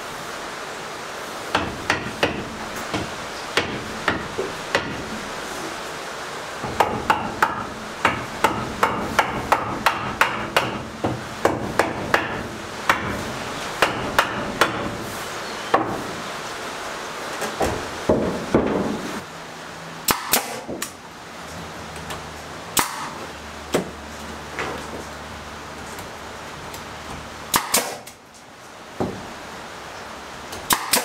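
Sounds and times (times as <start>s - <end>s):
heavy rain hissing: 0.0s - 1.6s, 2.5s - 6.6s, 14.9s - 18.1s.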